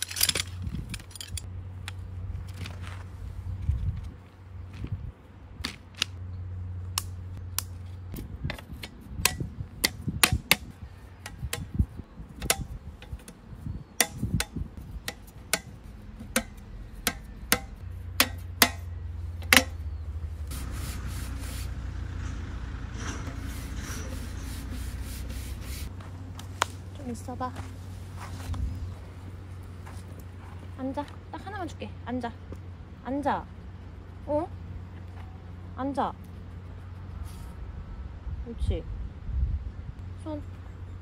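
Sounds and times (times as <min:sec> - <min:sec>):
sharp clicks and knocks: 0:12.4 - 0:13.4, 0:14.0 - 0:19.8
rubbing rustling noise: 0:23.2 - 0:25.9.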